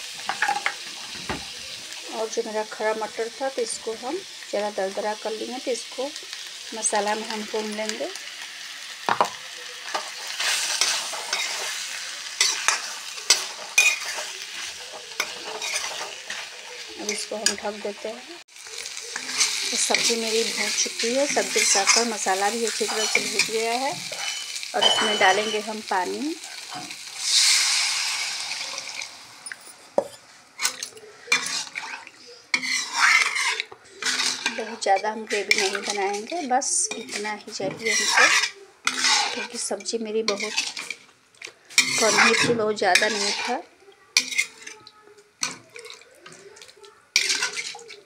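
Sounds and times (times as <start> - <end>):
food sizzling in oil: 0.0 - 48.0
metal spatula scraping pan: 9.8 - 18.1, 18.9 - 25.9, 26.5 - 41.1, 41.7 - 46.5, 47.1 - 48.0.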